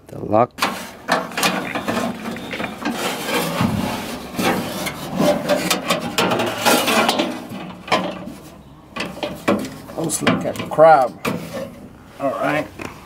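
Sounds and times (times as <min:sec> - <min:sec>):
metal scraping inside door: 0:00.6 - 0:12.6.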